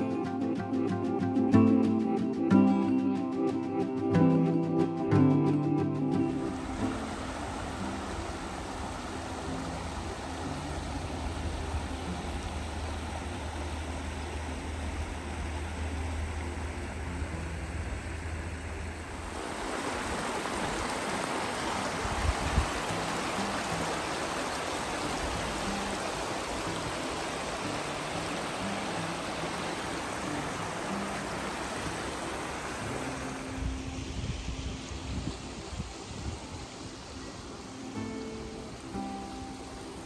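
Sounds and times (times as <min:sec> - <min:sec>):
stream rushing over stones: 0:06.1 - 0:40.0.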